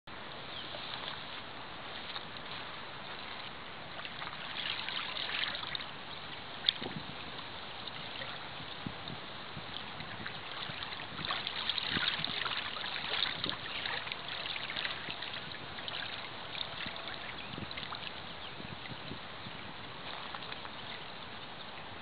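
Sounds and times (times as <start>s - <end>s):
lake waves lapping on sand: 0.2s - 22.0s.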